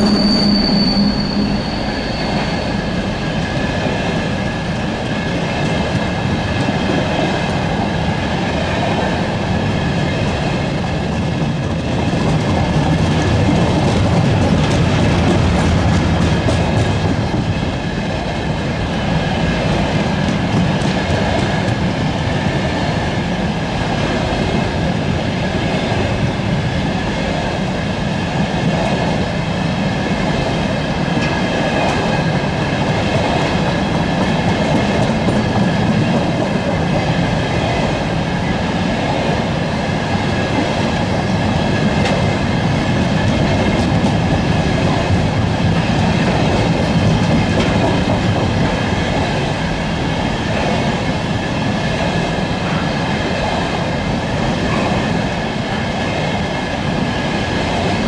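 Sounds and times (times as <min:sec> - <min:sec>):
wheel squeal: 0:00.0 - 0:04.0, 0:35.0 - 0:36.8
train wheels rumbling on rails: 0:00.0 - 0:58.0.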